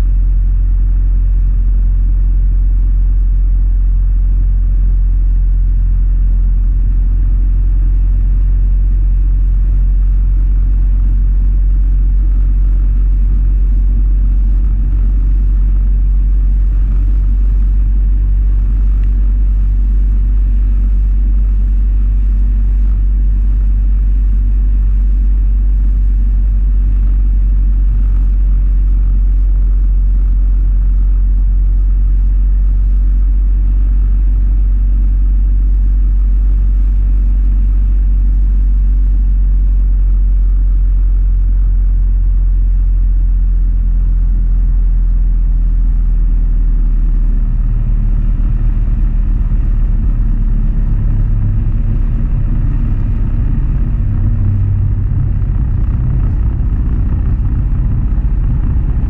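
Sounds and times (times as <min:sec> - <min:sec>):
motorcycle engine running: 0:00.0 - 0:59.0
wind rumble on microphone: 0:00.0 - 0:59.0.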